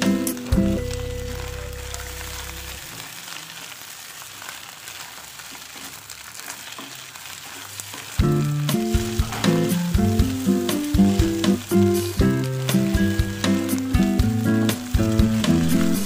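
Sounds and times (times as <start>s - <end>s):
background music with beat: 0.0s - 1.1s, 8.2s - 16.0s
fish roe sizzling: 0.0s - 16.0s
spatula scraping a pan: 4.4s - 12.2s.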